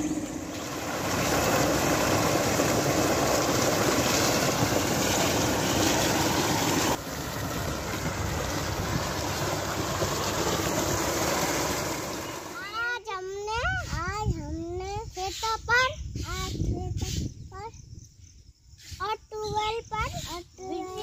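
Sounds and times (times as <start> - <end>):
water pouring into pool: 0.0 - 12.7.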